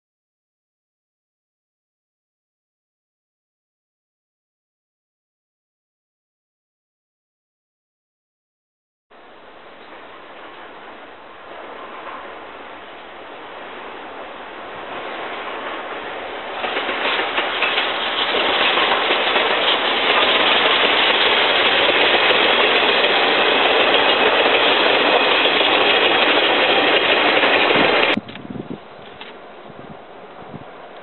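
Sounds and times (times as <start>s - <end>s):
steam train passing: 9.2s - 28.2s.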